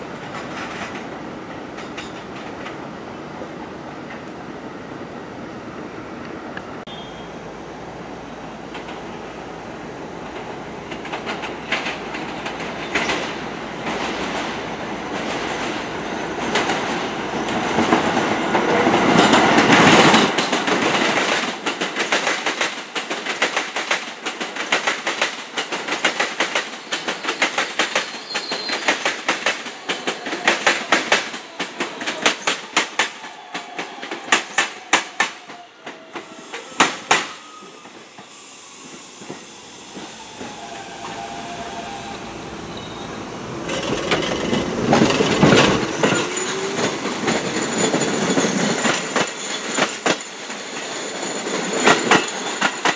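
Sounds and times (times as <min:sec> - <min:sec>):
subway train rumble: 0:00.0 - 0:52.9
wheels clacking over rail joints: 0:10.3 - 0:36.0, 0:43.6 - 0:52.9.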